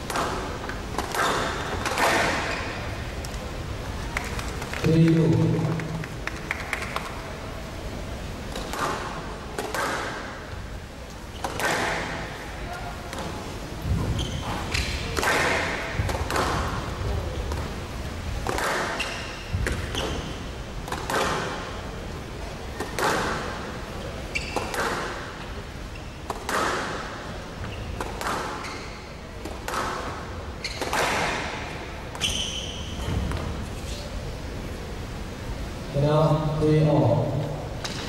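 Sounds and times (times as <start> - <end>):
shoes squeaking on wooden floor: 13.8 - 15.0, 24.3 - 24.8, 28.6 - 29.1, 30.6 - 31.1, 32.2 - 34.1.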